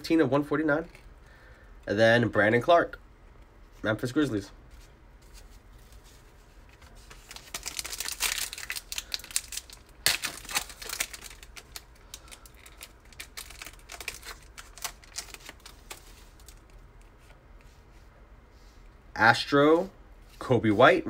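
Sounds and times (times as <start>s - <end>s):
foil wrapper crinkling: 6.7s - 17.0s.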